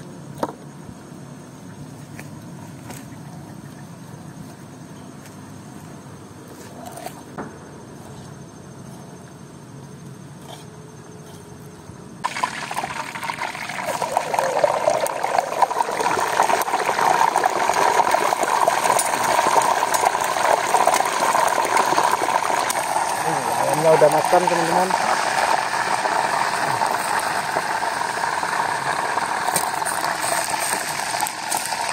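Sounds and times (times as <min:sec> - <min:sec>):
hot oil sizzling and crackling: 0:12.2 - 0:31.9.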